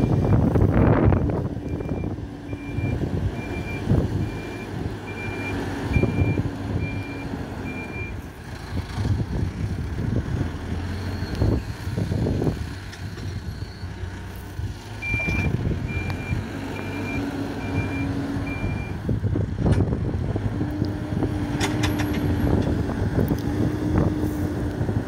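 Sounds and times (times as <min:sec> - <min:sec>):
diesel engine running: 0:00.0 - 0:25.0
reversing alarm beeps: 0:01.7 - 0:08.2, 0:11.0 - 0:11.6, 0:15.0 - 0:19.0.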